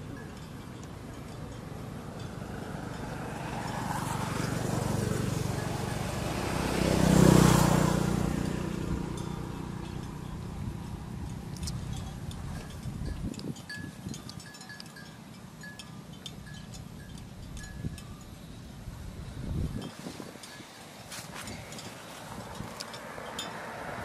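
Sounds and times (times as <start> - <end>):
vehicle passing close by: 0.0 - 13.2, 18.6 - 24.0.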